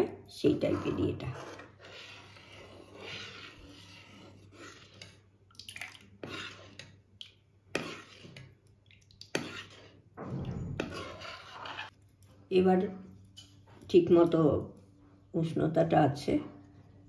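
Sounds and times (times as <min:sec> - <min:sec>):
milk dripping and splashing: 0:05.5 - 0:06.2, 0:08.6 - 0:09.4
spoon clinking and scraping pan: 0:07.7 - 0:08.6, 0:09.3 - 0:10.0, 0:10.7 - 0:11.9.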